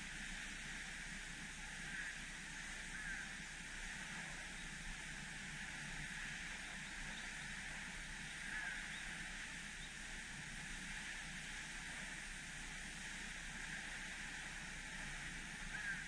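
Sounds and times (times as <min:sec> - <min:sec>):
faint bird calls: 0:02.9 - 0:03.4, 0:08.2 - 0:10.0, 0:15.6 - 0:16.0.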